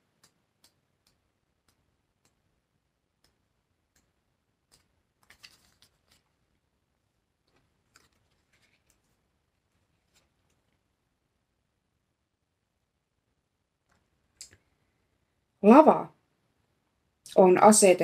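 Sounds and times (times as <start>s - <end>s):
book pages rustling: 4.6s - 6.6s, 7.4s - 10.8s
pages riffled: 5.2s - 6.3s.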